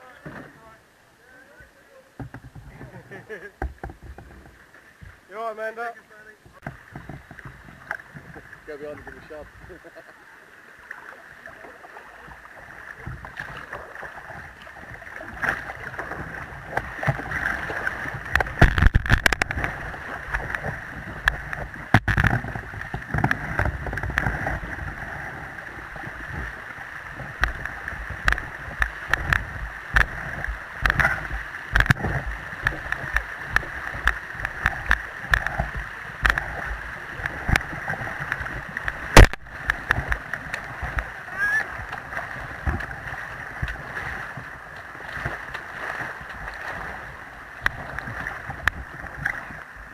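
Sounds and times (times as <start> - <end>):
sharp splashes and knocks: 6.5 - 9.0, 12.9 - 49.6
river water rushing: 6.6 - 49.9.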